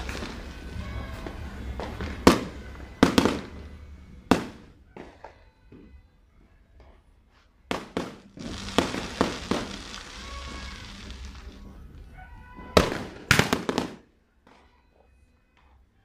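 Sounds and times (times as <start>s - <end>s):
fireworks crackling: 0.0s - 5.4s, 7.7s - 14.1s
fireworks bangs: 0.0s - 5.9s, 7.7s - 14.1s.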